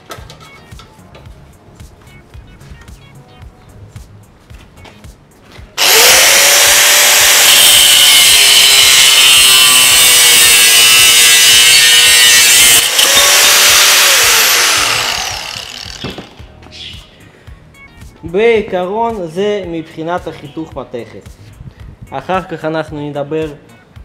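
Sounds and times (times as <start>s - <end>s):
angle grinder cutting steel: 5.8s - 16.4s.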